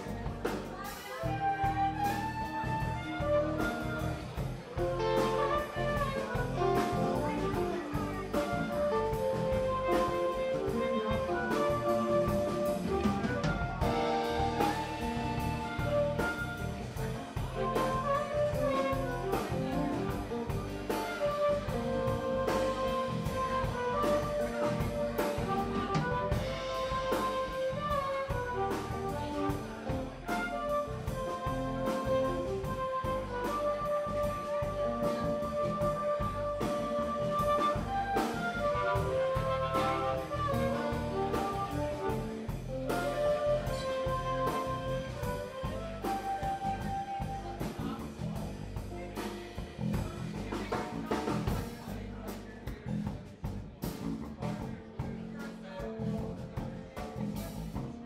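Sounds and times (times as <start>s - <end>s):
background music with drum beat: 0.0s - 58.0s.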